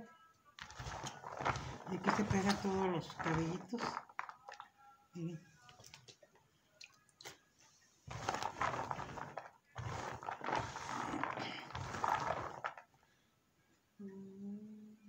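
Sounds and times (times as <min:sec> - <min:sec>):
hands rubbing corn kernels in bowl: 0:00.6 - 0:04.3, 0:08.1 - 0:12.8.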